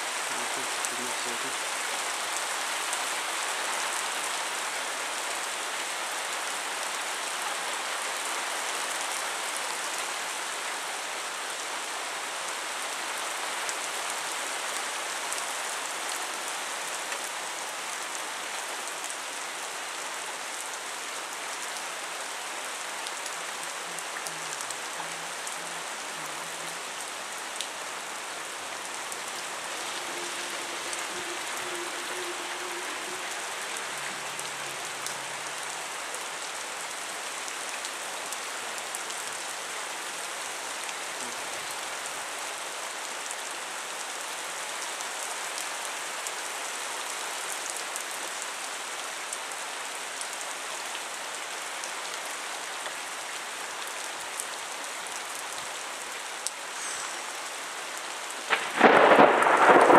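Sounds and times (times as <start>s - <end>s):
rain hissing: 0.0s - 6.0s, 16.6s - 42.9s, 55.8s - 59.9s.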